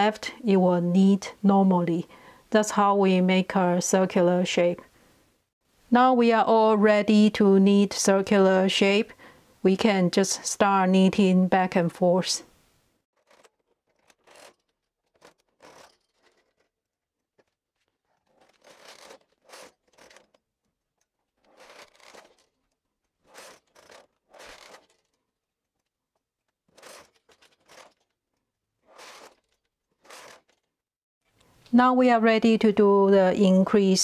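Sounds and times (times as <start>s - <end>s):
knitting machine carriage passes: 13.2s - 16.8s, 17.4s - 20.4s, 21.3s - 25.2s, 26.7s - 28.1s, 28.8s - 30.7s.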